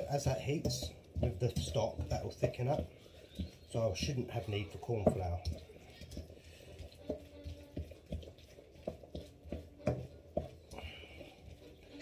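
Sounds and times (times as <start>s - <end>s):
wooden spoon knocking against pan: 0.0s - 3.5s, 8.9s - 10.6s.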